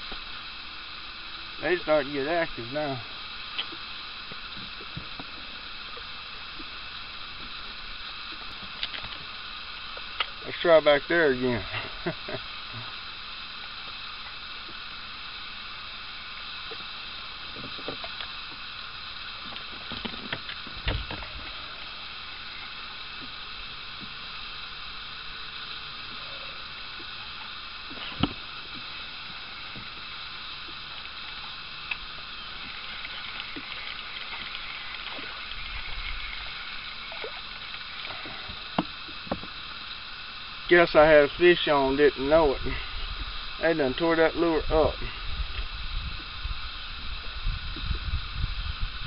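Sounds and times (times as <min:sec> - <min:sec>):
steady outdoor hiss: 0:00.0 - 0:49.0.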